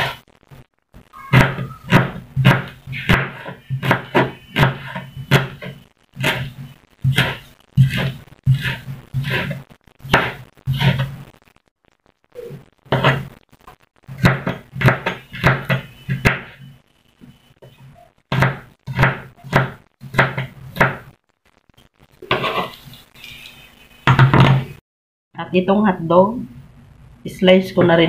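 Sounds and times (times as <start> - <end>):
knife chopping on wooden board: 1.4 - 6.4.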